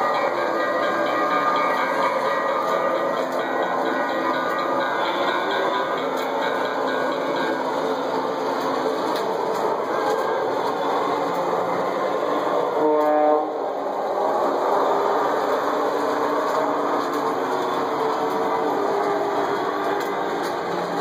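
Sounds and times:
toy train whirring rumble: 0.0s - 21.0s
toy train horn blast: 12.6s - 13.7s.

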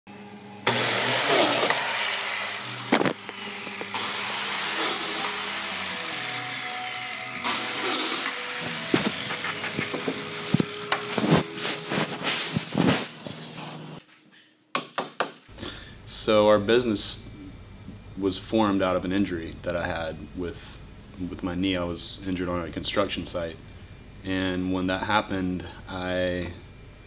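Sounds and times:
power saw cutting wood: 0.6s - 13.2s.

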